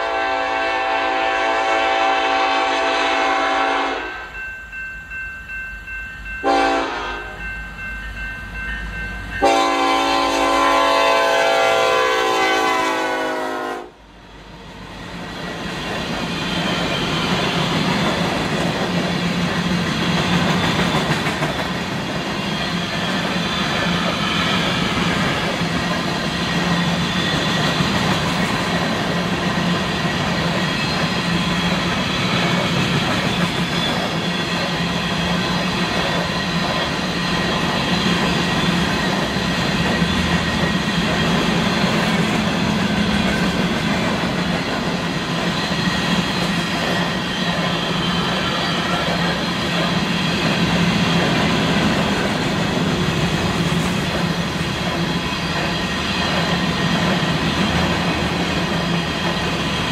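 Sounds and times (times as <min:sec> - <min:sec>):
locomotive horn blasts: 0:00.0 - 0:04.3, 0:06.4 - 0:07.4, 0:09.4 - 0:14.0
train wheels rumbling and clacking: 0:14.5 - 0:59.9.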